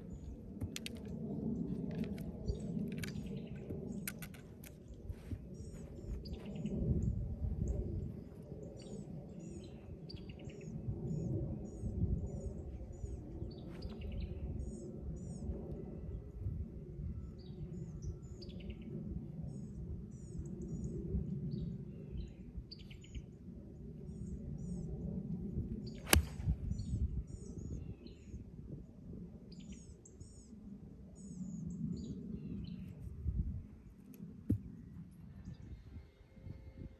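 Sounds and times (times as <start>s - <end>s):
wind rumble on microphone: 0.0s - 36.9s.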